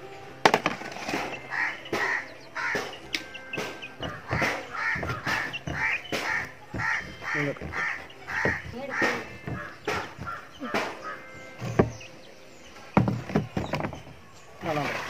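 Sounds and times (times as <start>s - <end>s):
crows cawing: 1.4s - 12.2s.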